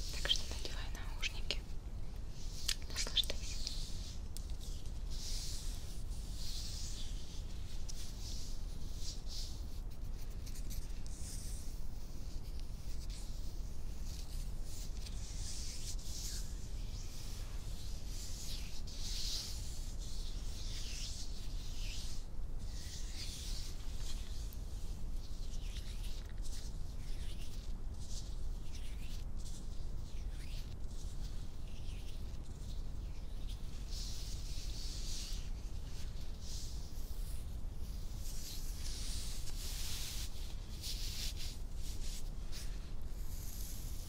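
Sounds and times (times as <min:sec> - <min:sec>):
hands rubbing together: 0:00.0 - 0:01.7, 0:02.4 - 0:11.4.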